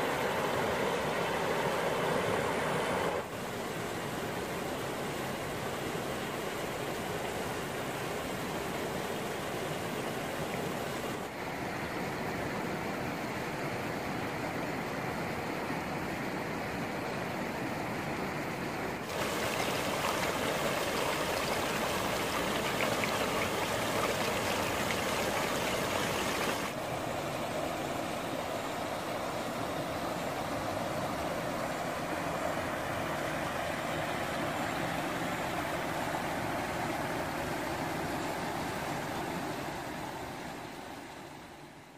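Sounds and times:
water rushing over rocks: 19.0s - 40.6s.

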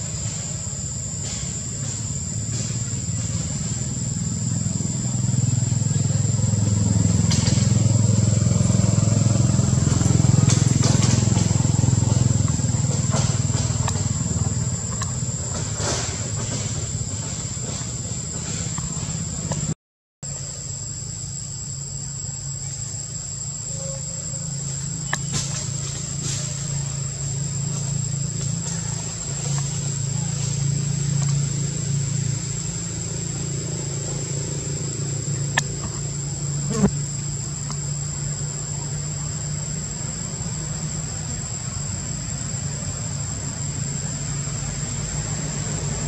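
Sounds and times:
continuous low rumble: 0.0s - 46.0s
high-pitched insect drone: 20.3s - 46.0s.

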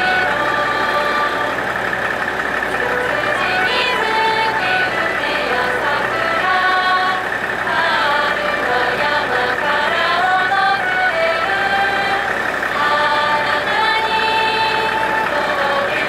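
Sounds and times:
idling diesel railcar hum: 0.0s - 16.0s
women singing slow song: 0.0s - 16.0s.

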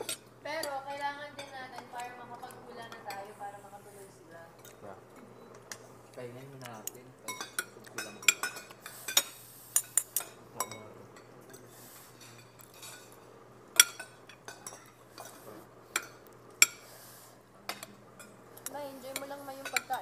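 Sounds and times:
cutlery clinking on ceramic bowls: 6.7s - 13.2s, 13.8s - 16.9s, 17.7s - 20.0s.

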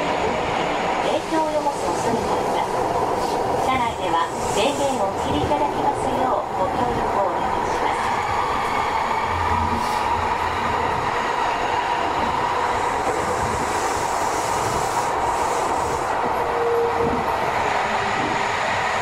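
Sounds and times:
train rolling noise: 0.0s - 19.0s.

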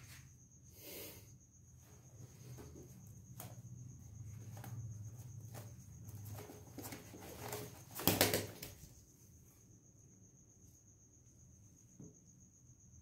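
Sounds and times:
crickets chirring: 0.0s - 13.0s
rustles: 1.8s - 9.2s
bird wings flapping: 5.5s - 9.0s.

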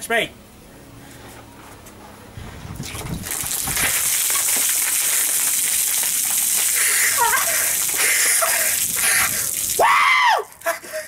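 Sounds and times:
water splashing over person: 2.8s - 10.0s.

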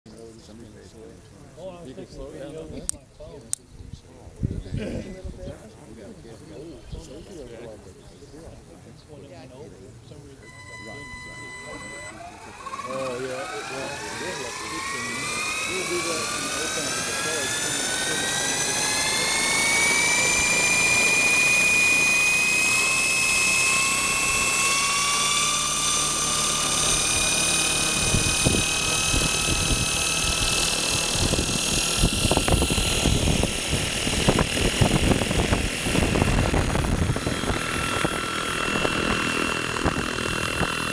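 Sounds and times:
rotor downwash buffeting microphone: 0.1s - 40.9s
model helicopter rotor whining: 10.4s - 40.9s.

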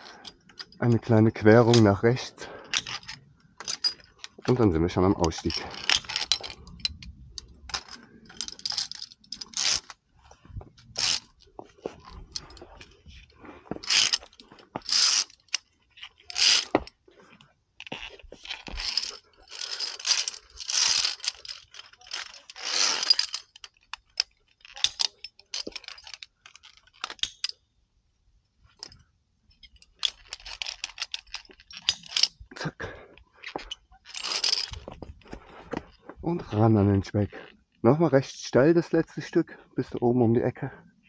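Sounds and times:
scraping and rustling of climbing gear: 0.0s - 27.7s, 28.5s - 41.0s.

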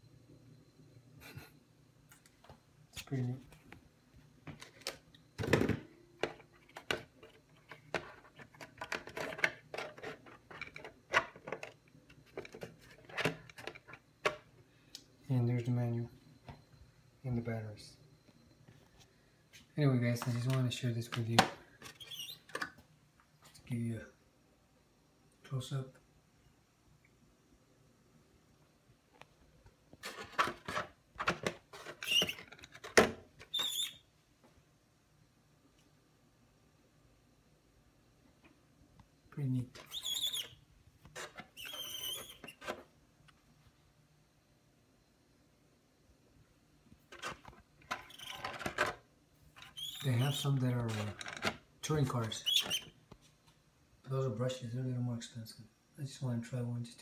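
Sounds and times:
plastic shell rustling and clattering: 4.5s - 14.5s, 30.0s - 33.7s, 47.0s - 52.8s
short high squeaks: 22.0s - 22.5s, 32.0s - 32.4s, 33.5s - 34.0s, 39.8s - 40.6s, 41.5s - 42.6s, 48.0s - 48.4s, 49.6s - 50.5s, 52.3s - 53.0s
plastic clicks and rustles: 47.0s - 49.0s, 50.8s - 51.6s.

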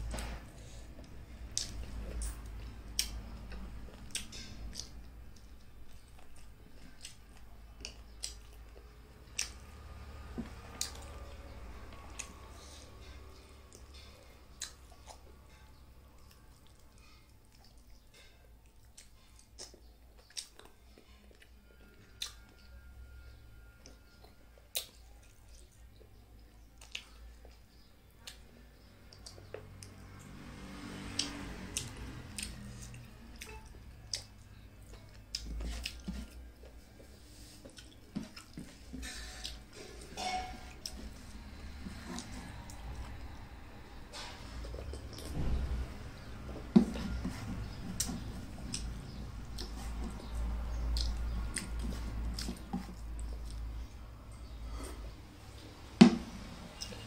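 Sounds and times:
chewing and mouth smacks: 1.0s - 9.8s, 12.0s - 22.6s, 24.1s - 28.4s, 29.1s - 30.4s, 31.0s - 40.1s, 44.5s - 45.5s, 46.2s - 55.2s.

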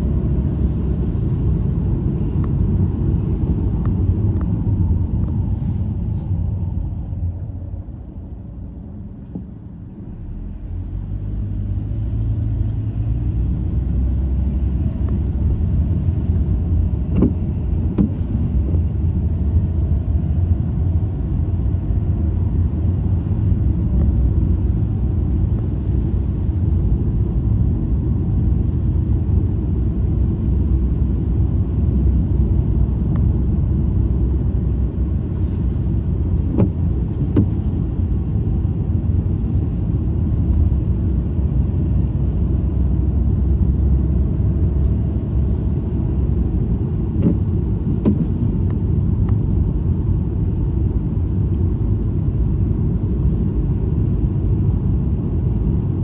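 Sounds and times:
car road noise inside cabin: 0.0s - 56.0s.

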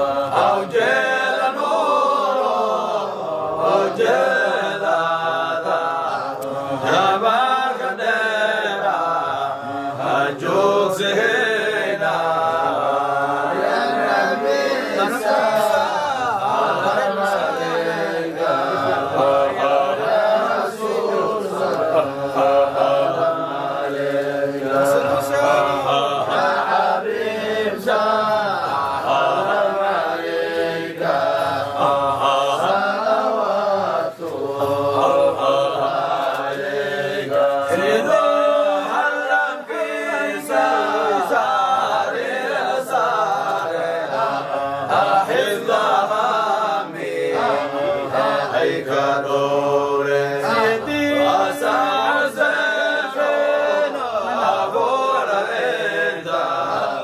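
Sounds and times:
men chanting together: 0.0s - 57.0s.

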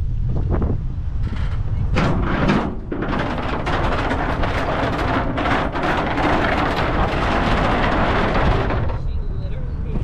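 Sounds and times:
wind buffeting microphone: 0.0s - 10.0s
bike knocks and rattles: 1.2s - 9.2s.

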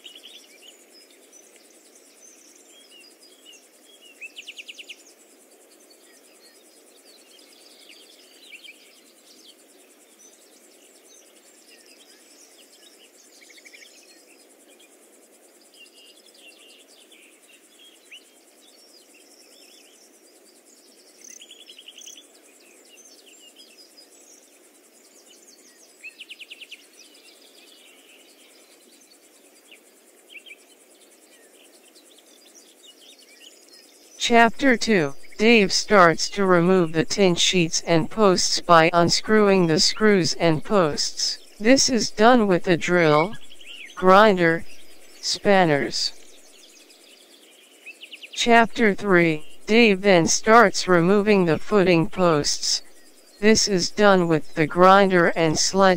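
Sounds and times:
birds and insects chirping: 29.6s - 48.4s.

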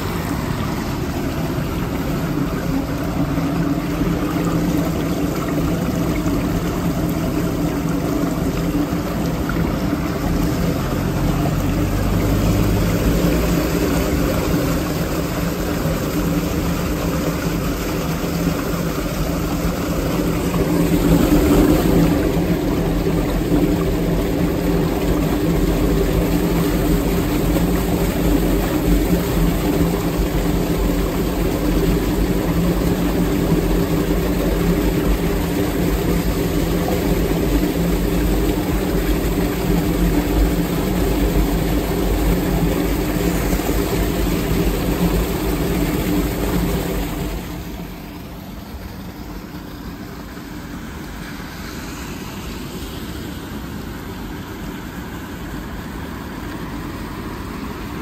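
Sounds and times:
water rushing through drain grate: 0.0s - 58.0s.

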